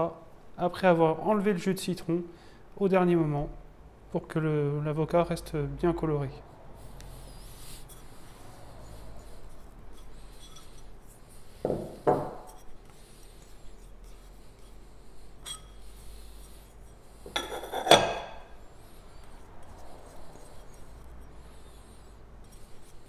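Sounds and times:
small bowls clinking together: 15.4s - 15.8s.

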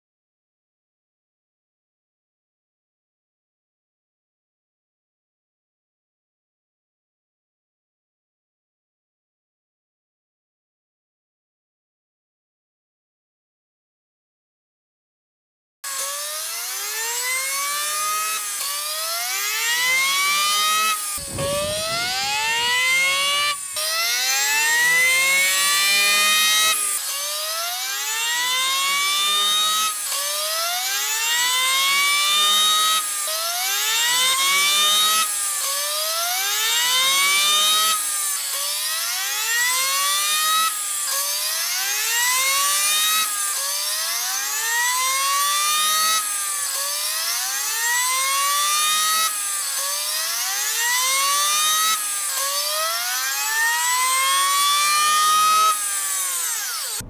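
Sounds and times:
diesel engine rising whine: 21.2s - 24.0s.

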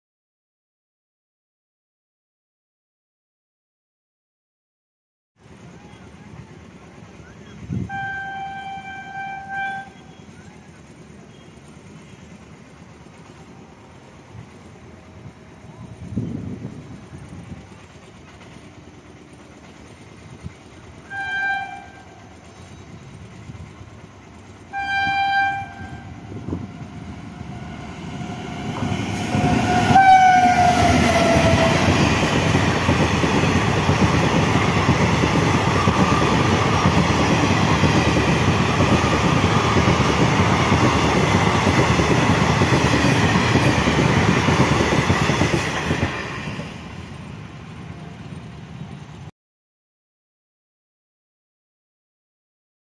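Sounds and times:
train coaches running on rails: 5.4s - 49.3s
locomotive horn blasts: 7.8s - 10.2s, 21.0s - 22.3s, 24.7s - 26.3s, 27.4s - 31.9s.

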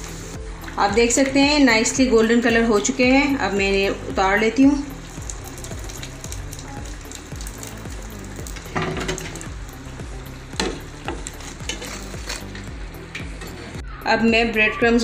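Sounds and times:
deep-frying sizzle in hot oil: 0.0s - 13.8s
oil crackling bursts: 2.8s - 13.8s.

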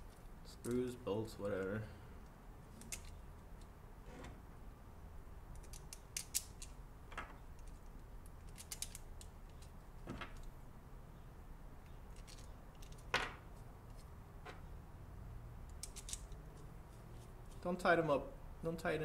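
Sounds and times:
plastic mount pieces clicking: 5.6s - 6.8s, 7.5s - 9.7s.

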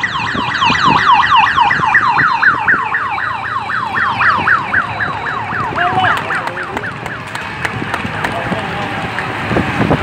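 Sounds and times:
electronic siren yelping: 0.0s - 7.3s.

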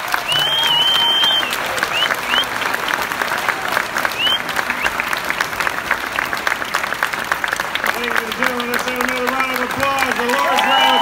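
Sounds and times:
audience applauding: 0.0s - 11.0s
short rising whistles: 0.2s - 2.6s, 4.1s - 5.0s.

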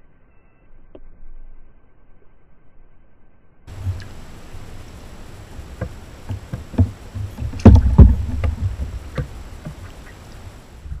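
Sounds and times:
ducklings splashing in water: 3.7s - 10.8s
water slapping against camera: 3.7s - 10.8s
loud thuds: 3.7s - 11.0s.

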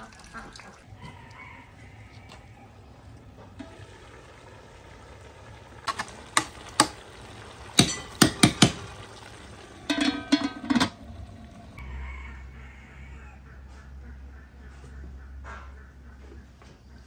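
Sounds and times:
metal ladle stirring in pot: 5.8s - 11.2s
ladle clinking against pot: 7.8s - 8.9s, 9.9s - 11.0s.

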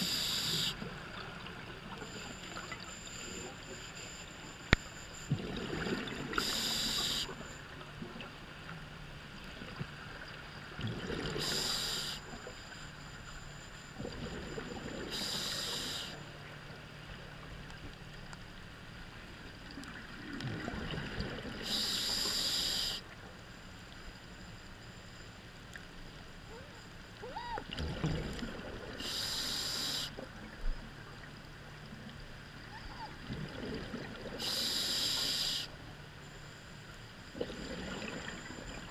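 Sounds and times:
diver breathing through regulator: 34.4s - 35.7s.

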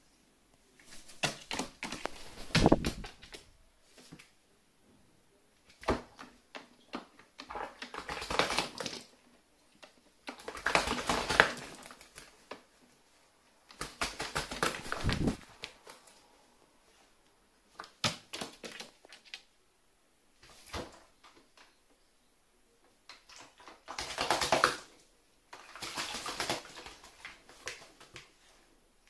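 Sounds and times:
wing flapping: 1.0s - 3.3s, 13.7s - 16.0s
crow splashing in water: 7.4s - 9.1s, 10.3s - 12.3s, 13.7s - 16.0s, 23.2s - 28.2s.

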